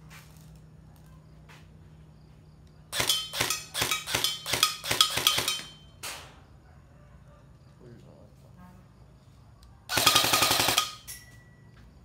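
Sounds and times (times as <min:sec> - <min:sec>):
airsoft rifle shots: 0:02.9 - 0:06.3, 0:09.9 - 0:11.1.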